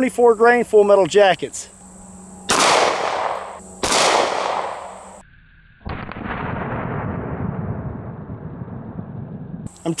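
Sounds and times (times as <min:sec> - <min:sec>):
pistol shot echoing: 0:02.5 - 0:05.1
deep boom with rumbling: 0:05.8 - 0:09.7.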